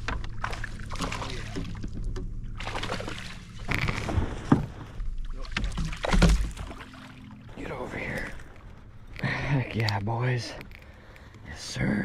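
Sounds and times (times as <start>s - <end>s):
fish splashing in water: 0.0s - 7.6s.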